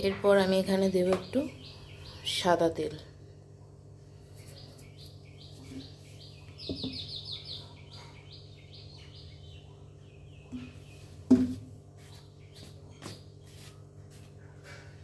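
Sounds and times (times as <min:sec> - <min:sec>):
steady low hum: 0:00.0 - 0:15.0
small bird chirping: 0:00.9 - 0:02.9, 0:04.2 - 0:11.2, 0:12.0 - 0:13.7.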